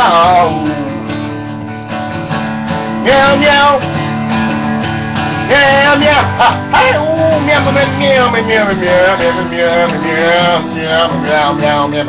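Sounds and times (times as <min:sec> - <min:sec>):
person singing: 0:00.0 - 0:01.5, 0:03.0 - 0:03.9, 0:05.4 - 0:12.0
acoustic guitar strumming: 0:00.0 - 0:12.0.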